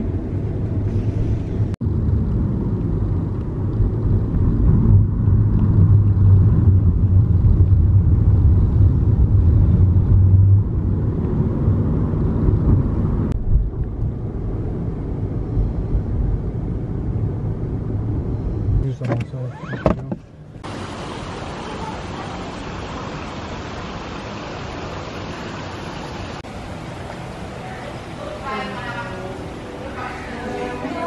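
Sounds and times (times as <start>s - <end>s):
car road and engine rumble: 0.0s - 31.0s.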